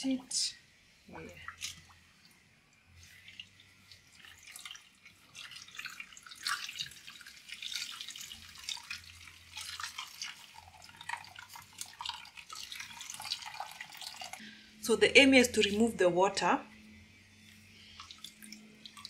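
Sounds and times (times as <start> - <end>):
liquid trickling into metal bowl: 3.0 - 14.4, 15.4 - 16.0, 17.4 - 19.0.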